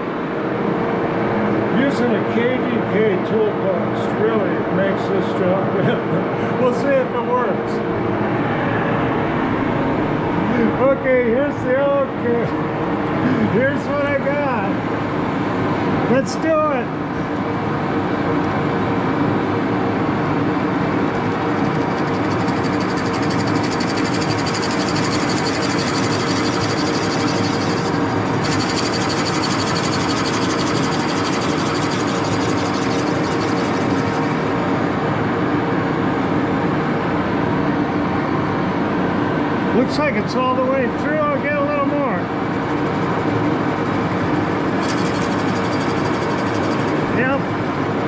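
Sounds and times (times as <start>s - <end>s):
lathe humming: 20.2s - 35.9s, 42.3s - 48.0s.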